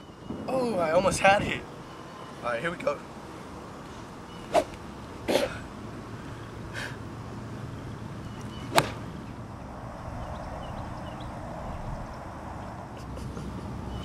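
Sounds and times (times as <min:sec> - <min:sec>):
golf clubhead striking: 0:04.5 - 0:04.8, 0:08.7 - 0:09.1.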